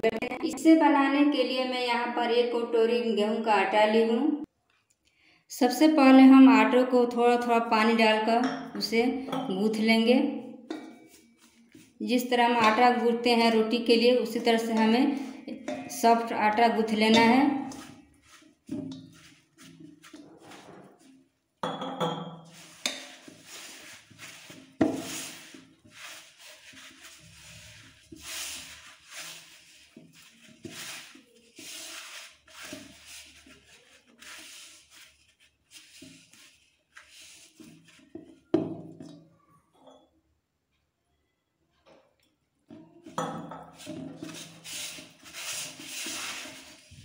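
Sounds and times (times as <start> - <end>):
hands kneading dough in metal bowl: 5.8 - 21.6, 22.3 - 39.5, 42.7 - 47.0.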